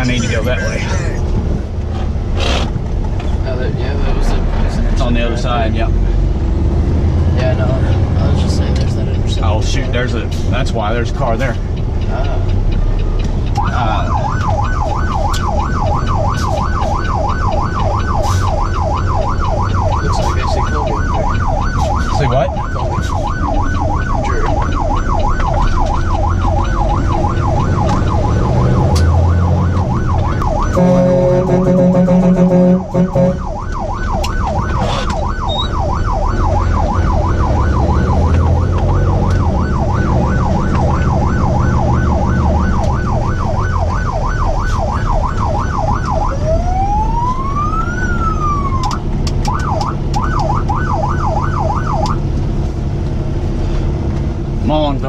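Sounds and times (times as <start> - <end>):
diesel engine running: 0.0 - 55.0
electronic siren yelping: 13.5 - 52.3
truck horn blast: 30.7 - 33.4.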